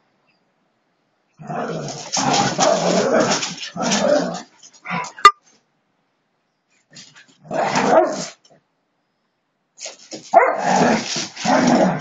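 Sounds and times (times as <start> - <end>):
dogs barking: 10.3 - 10.8.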